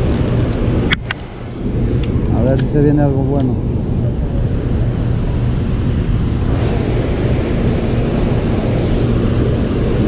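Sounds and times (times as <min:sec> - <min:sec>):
wind buffeting microphone: 0:00.0 - 0:10.0
water rushing through spillway: 0:06.4 - 0:10.0.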